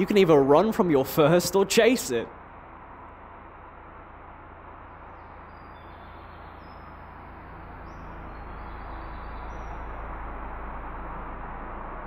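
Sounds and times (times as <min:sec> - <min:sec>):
steady rushing noise: 0:00.0 - 0:12.0
faint high bird chirps: 0:05.1 - 0:10.6.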